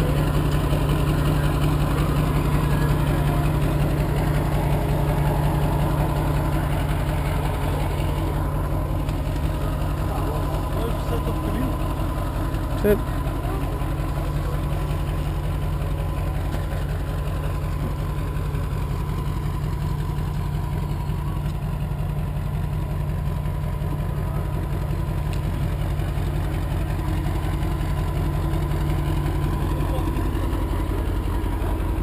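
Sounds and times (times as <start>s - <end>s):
diesel truck engine idling: 0.0s - 32.0s.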